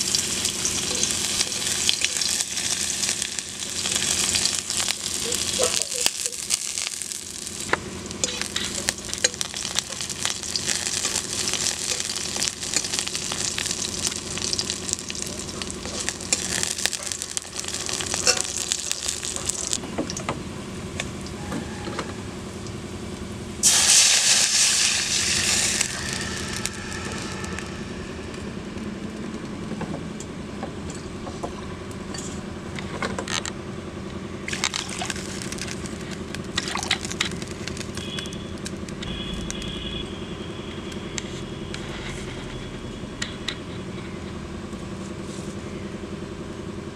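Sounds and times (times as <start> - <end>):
oil sizzling in a wok: 0.0 - 19.8, 23.6 - 27.9, 34.4 - 39.3
loud hiss of liquid in oil: 23.6 - 26.5.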